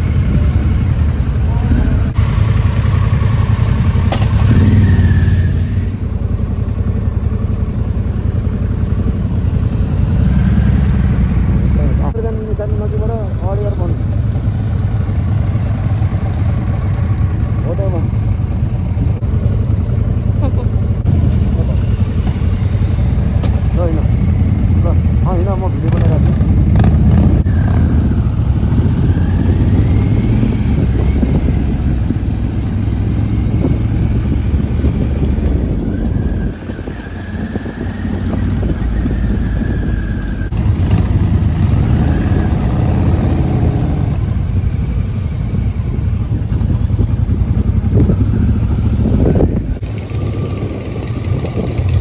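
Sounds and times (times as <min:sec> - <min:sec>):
motorcycle engine running: 0:00.0 - 0:52.0.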